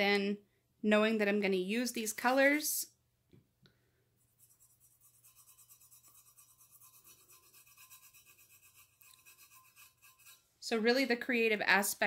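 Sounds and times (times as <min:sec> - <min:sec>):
fingertip scrubbing on steel: 0:04.2 - 0:10.5.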